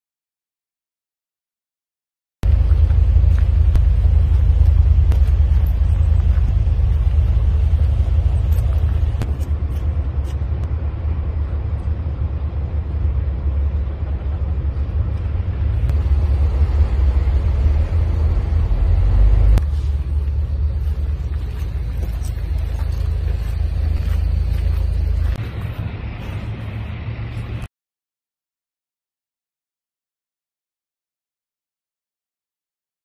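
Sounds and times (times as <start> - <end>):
loud low rumble: 2.4 - 27.7.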